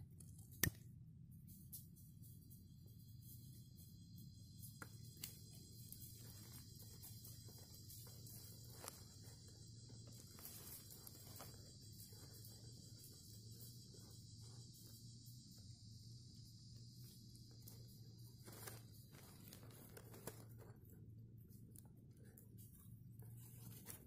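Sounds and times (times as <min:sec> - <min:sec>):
insects chorus: 0:01.4 - 0:24.0
dry twigs clicking: 0:04.8 - 0:14.3, 0:17.0 - 0:22.8.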